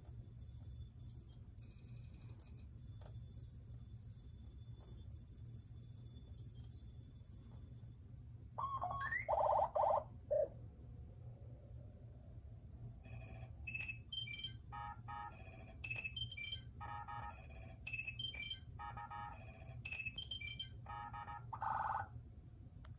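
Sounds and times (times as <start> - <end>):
short electronic beeps and chirps: 13.1 - 22.1.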